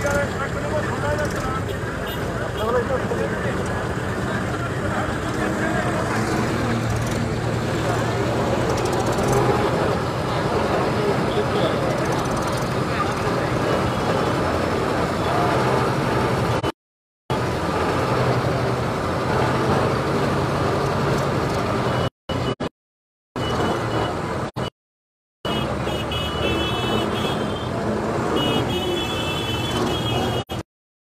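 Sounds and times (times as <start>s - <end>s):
crowd of people: 0.0s - 15.9s
diesel engine running: 0.0s - 16.7s, 17.3s - 22.6s.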